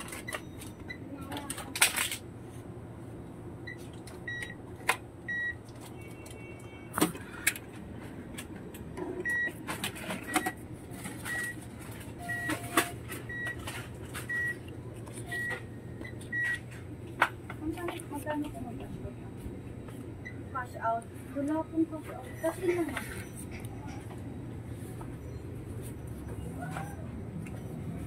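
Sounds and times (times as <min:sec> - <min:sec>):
steady low hum: 0:07.1 - 0:28.0.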